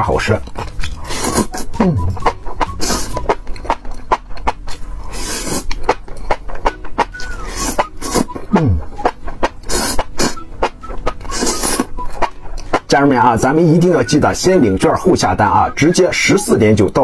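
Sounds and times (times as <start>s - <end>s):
slurping and wet chewing: 0.2s - 13.0s
mouth clicks and smacks: 0.3s - 12.9s.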